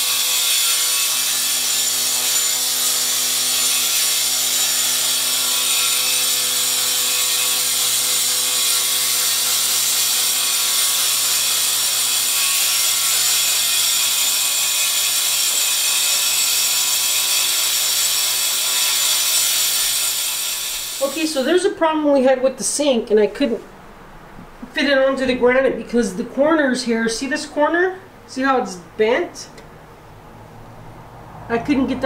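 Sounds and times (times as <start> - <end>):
angle grinder cutting stone: 0.0 - 21.6.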